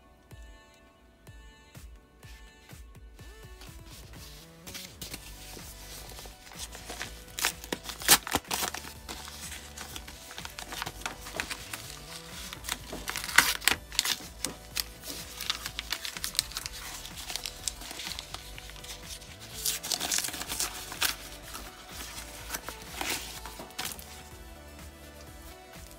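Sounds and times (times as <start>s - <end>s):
soft background music: 0.0s - 25.9s
paper envelope tearing and crinkling: 3.9s - 24.3s.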